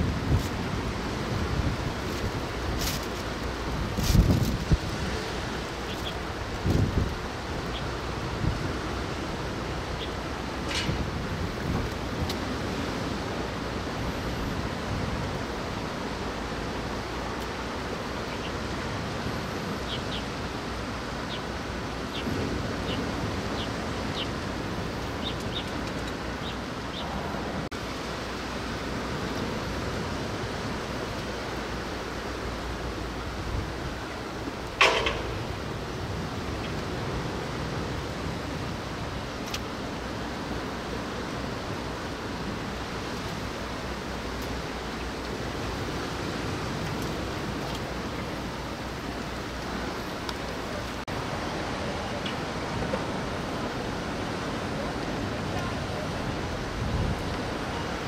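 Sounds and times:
rain: 0.0s - 58.0s
wind: 0.0s - 58.0s
light ticks: 39.4s - 39.7s.

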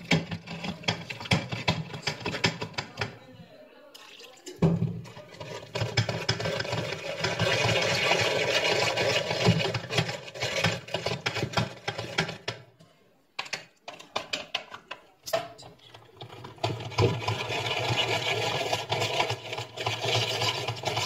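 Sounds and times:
food mill grinding rattle: 5.3s - 12.5s, 16.2s - 21.0s.

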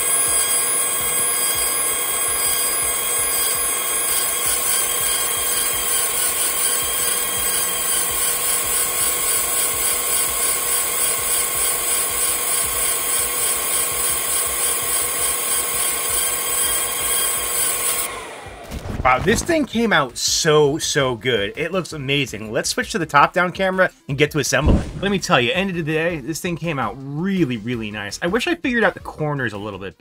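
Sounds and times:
laser marker buzzing whine: 0.0s - 19.6s.

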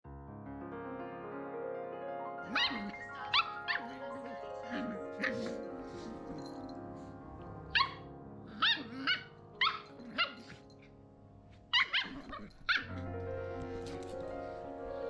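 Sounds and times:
background music: 0.1s - 15.0s
puppy yipping: 2.5s - 4.0s, 4.8s - 5.6s, 7.7s - 10.6s, 11.7s - 13.0s.

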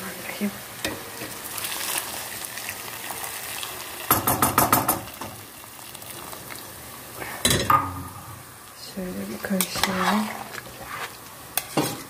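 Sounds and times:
vegetables sizzling: 0.0s - 12.0s
hot water pouring into pot: 0.8s - 8.8s.

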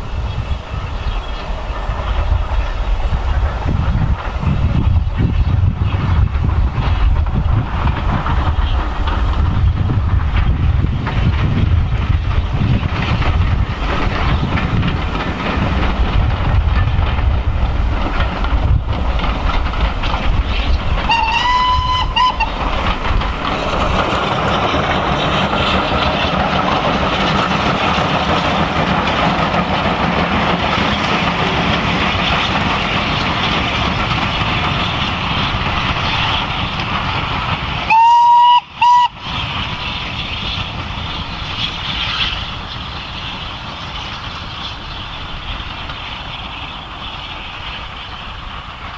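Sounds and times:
steam locomotive rumble and hiss: 0.0s - 48.9s
steam whistle blowing: 21.1s - 22.5s, 37.9s - 39.2s.

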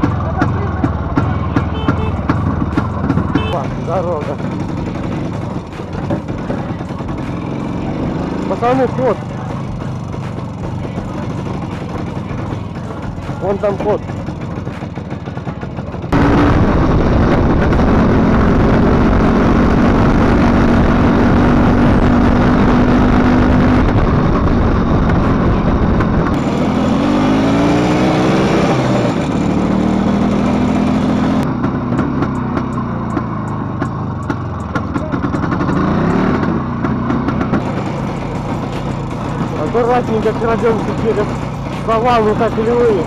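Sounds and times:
motorcycle engine revving: 0.0s - 43.0s
wind noise on microphone: 16.2s - 26.4s.

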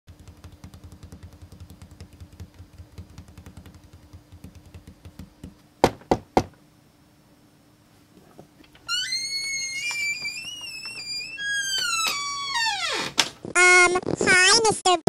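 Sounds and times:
knocking on a door: 0.4s - 6.6s.

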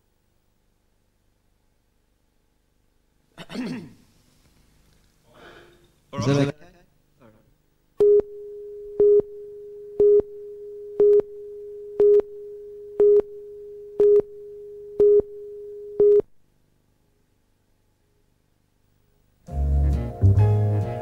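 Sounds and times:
steady countdown tone: 8.0s - 16.2s
beeps: 10.0s - 14.4s, 15.0s - 16.2s.

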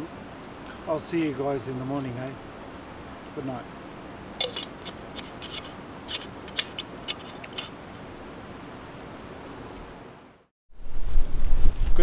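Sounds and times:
background hiss: 0.0s - 10.5s
scratchy clicks and rubs: 4.4s - 7.8s.

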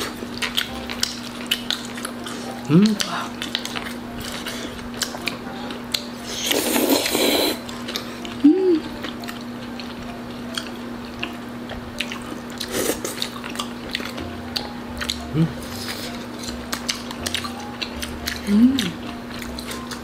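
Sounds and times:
wet chewing: 0.0s - 20.0s
person humming: 2.4s - 3.4s, 5.3s - 9.2s, 14.3s - 16.3s, 18.1s - 19.2s.

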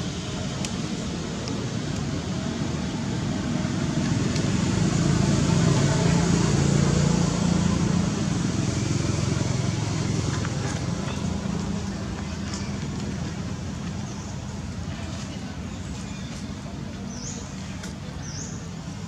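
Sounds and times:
vehicle engine droning: 0.0s - 14.8s.

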